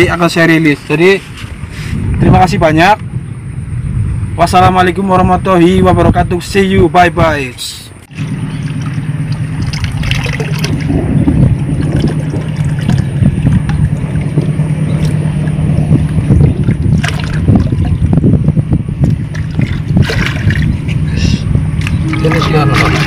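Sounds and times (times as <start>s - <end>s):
wind rumbling on microphone: 0.0s - 23.0s
low hum: 7.8s - 23.0s
water trickling and splashing: 8.1s - 23.0s.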